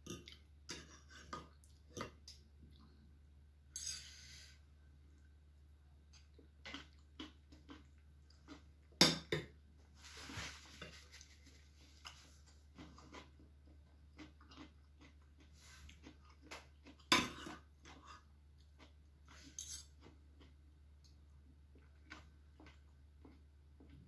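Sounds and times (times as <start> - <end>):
soft chewing: 0.1 - 3.1, 6.0 - 9.0, 10.0 - 24.0.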